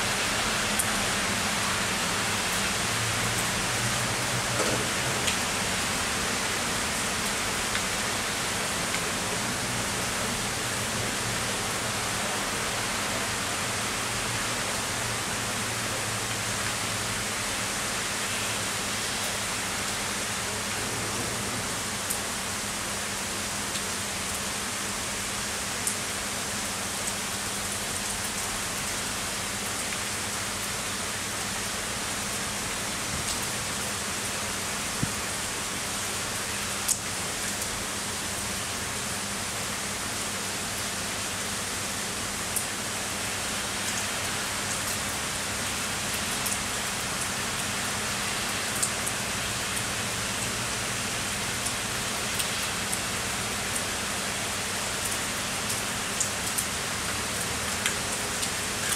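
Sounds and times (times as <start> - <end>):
heavy rain hissing: 0.0 - 23.4.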